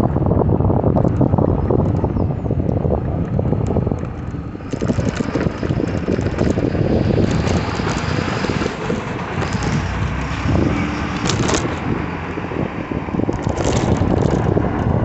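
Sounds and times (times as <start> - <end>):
city street traffic: 0.0 - 15.0
wind rushing over microphone: 0.0 - 15.0.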